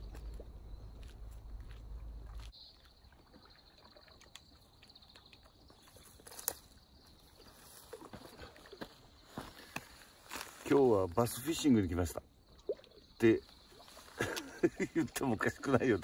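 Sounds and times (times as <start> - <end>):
footsteps on concrete: 0.0 - 2.6.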